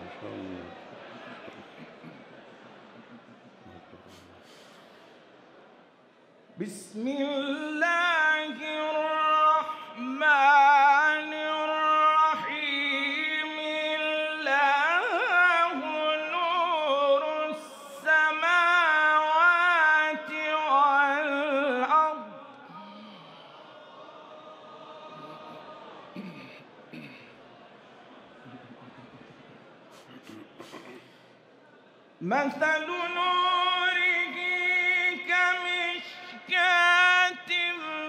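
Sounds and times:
man reciting melodically: 6.6s - 23.2s, 32.2s - 38.0s.

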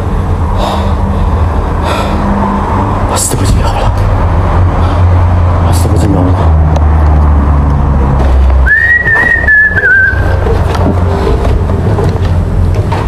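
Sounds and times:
high whistled note: 8.6s - 10.3s.

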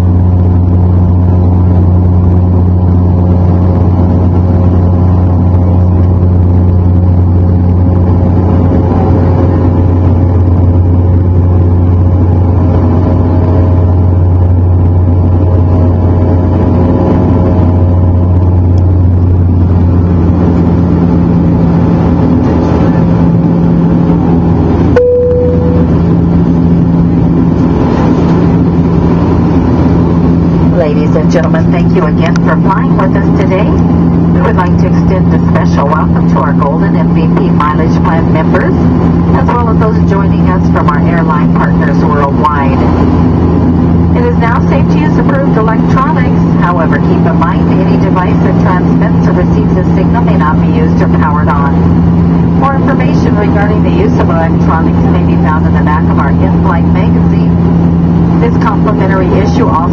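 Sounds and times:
propeller engines droning: 0.0s - 59.9s
short single tone: 24.9s - 26.2s.

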